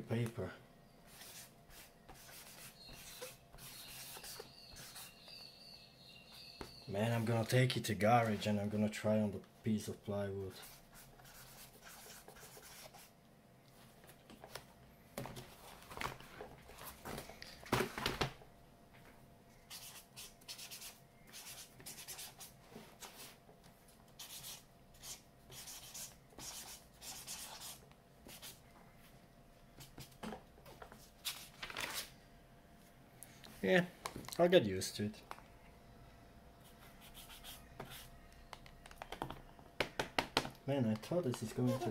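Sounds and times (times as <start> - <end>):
marker scratching on paper: 1.1 - 5.2, 10.6 - 13.1, 19.7 - 23.4, 24.2 - 28.6, 36.6 - 38.1, 41.4 - 41.9.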